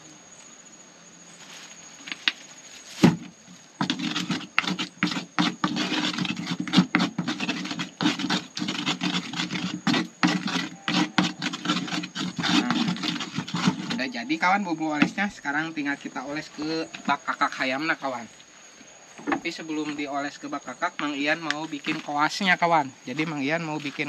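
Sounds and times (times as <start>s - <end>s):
pestle knocking mortar: 3.0s - 14.0s, 15.0s - 15.2s
pestle scraping mortar: 3.0s - 15.4s, 16.5s - 17.6s, 20.9s - 22.4s, 23.1s - 24.0s.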